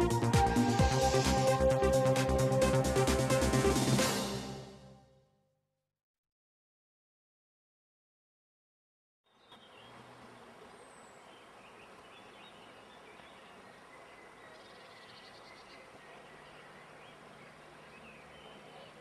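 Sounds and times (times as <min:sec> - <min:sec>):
steady outdoor hiss: 0:00.0 - 0:04.6, 0:09.3 - 0:19.0
birds chirping: 0:09.3 - 0:19.0.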